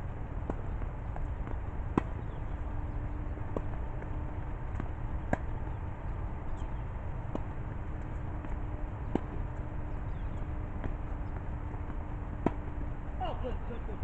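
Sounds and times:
low background rumble: 0:00.0 - 0:14.0
tennis ball bouncing: 0:00.0 - 0:14.0
tennis ball struck by racket: 0:00.2 - 0:12.9.

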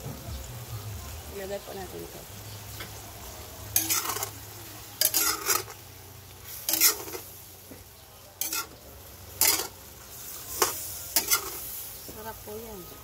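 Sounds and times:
faint sizzle: 0:00.0 - 0:13.0
utensil scraping in metal pan: 0:03.7 - 0:05.8, 0:06.4 - 0:07.8, 0:08.4 - 0:12.1.

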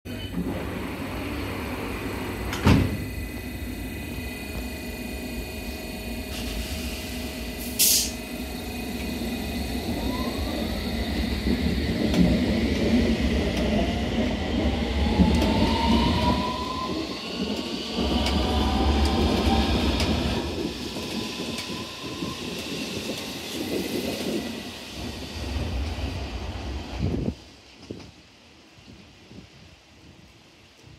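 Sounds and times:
train motor whine climbing: 0:00.1 - 0:27.0
train doors shutting: 0:00.1 - 0:27.2
brief hiss: 0:06.3 - 0:08.2.

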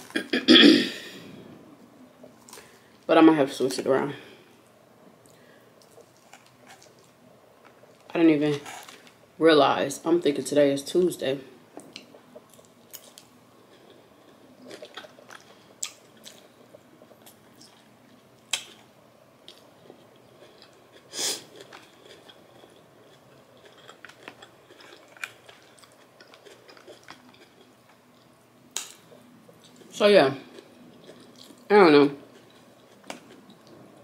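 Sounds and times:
person chewing food: 0:05.2 - 0:09.2, 0:11.7 - 0:34.0.

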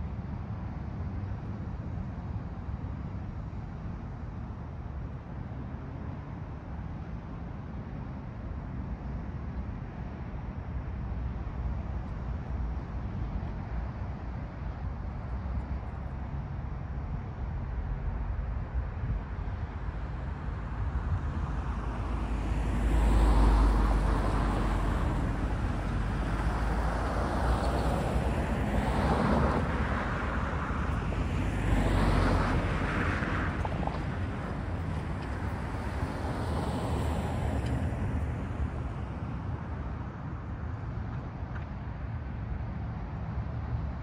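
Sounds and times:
low traffic rumble: 0:00.0 - 0:44.0
cars driving by: 0:19.0 - 0:44.0.

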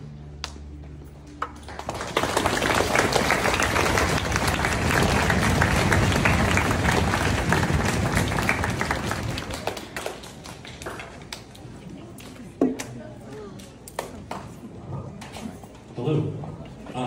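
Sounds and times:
audience applauding: 0:01.4 - 0:11.6.

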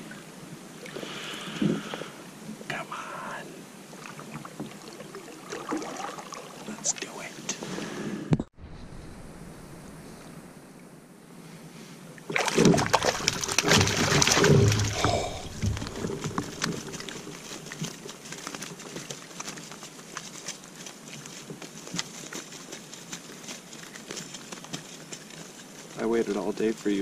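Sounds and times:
fish splashing in water: 0:04.0 - 0:06.7, 0:12.3 - 0:21.1
water dripping: 0:12.3 - 0:20.4.

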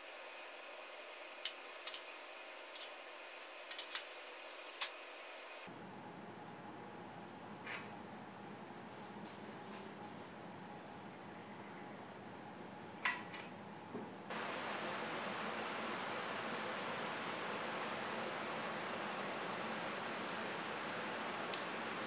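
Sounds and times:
faint high-pitched whine: 0:00.0 - 0:22.0
hiss: 0:14.3 - 0:22.0.

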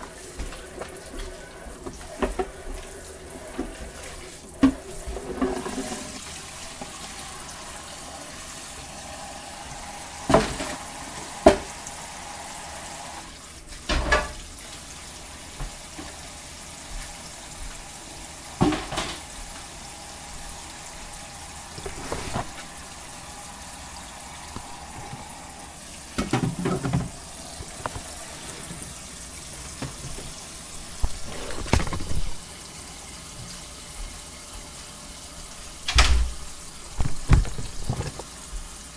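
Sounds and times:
tap running into sink: 0:10.2 - 0:11.8, 0:18.6 - 0:19.7, 0:24.5 - 0:25.5, 0:26.1 - 0:28.8, 0:37.0 - 0:38.3.

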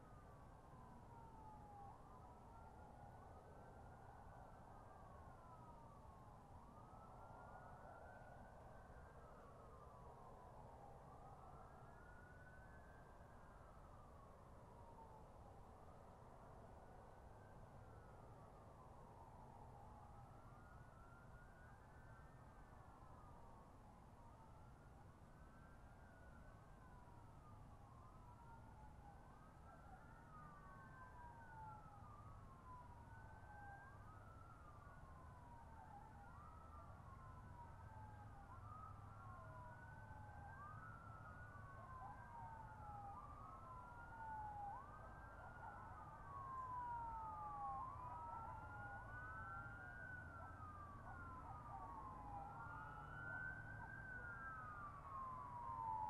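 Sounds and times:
emergency sirens wailing: 0:26.4 - 0:56.0.

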